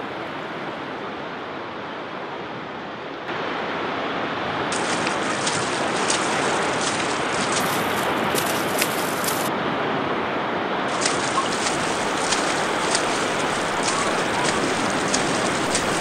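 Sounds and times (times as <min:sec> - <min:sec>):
sea surf breaking: 0:03.6 - 0:09.5, 0:10.8 - 0:16.0
splashes of wading: 0:04.6 - 0:09.5, 0:10.9 - 0:16.0.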